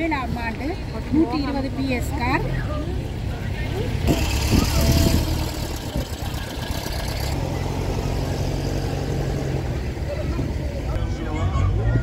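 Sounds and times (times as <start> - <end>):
engine idling: 2.1 - 10.9.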